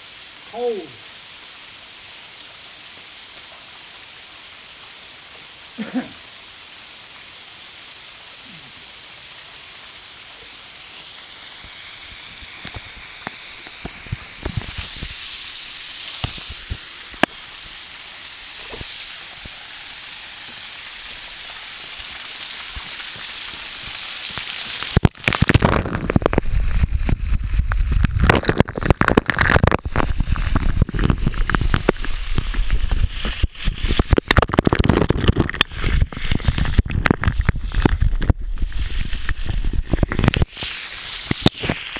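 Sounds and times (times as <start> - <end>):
waterfall rushing: 0.0 - 41.9
water pouring onto camera: 11.0 - 41.9.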